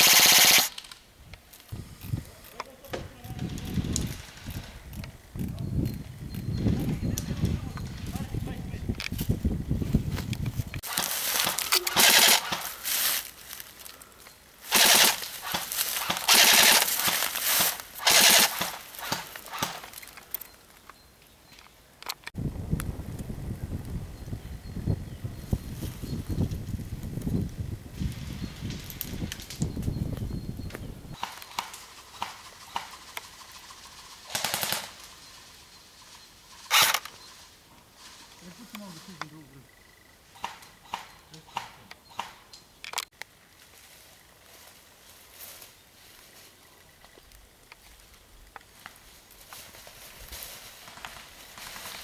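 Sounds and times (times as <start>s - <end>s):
airsoft gun firing bursts: 0.0s - 0.8s, 10.8s - 12.8s, 14.7s - 19.8s, 34.2s - 35.0s.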